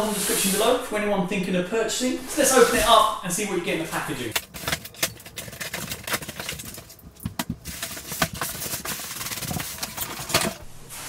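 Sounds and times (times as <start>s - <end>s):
cardboard rustling: 4.4s - 11.0s.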